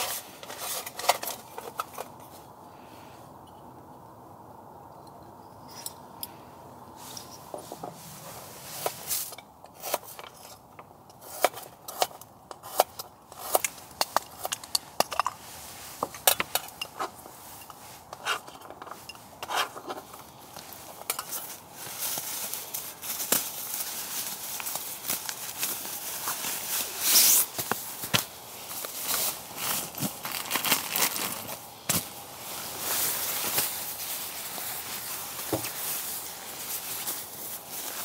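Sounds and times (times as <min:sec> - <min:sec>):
steady hiss: 0:00.0 - 0:38.0
camp cookware clattering: 0:09.2 - 0:21.6.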